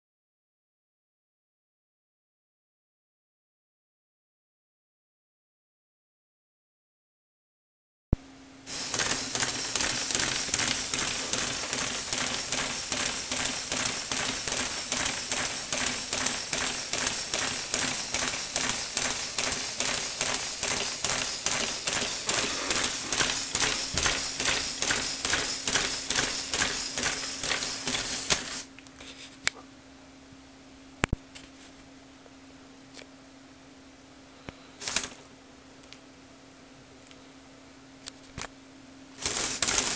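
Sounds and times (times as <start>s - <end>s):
toy robot legs clacking: 8.7s - 28.6s.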